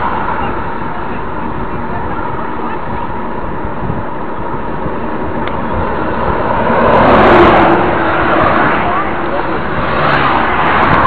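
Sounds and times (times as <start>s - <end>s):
wind buffeting microphone: 0.0s - 11.0s
motor vehicle passing: 4.8s - 11.0s.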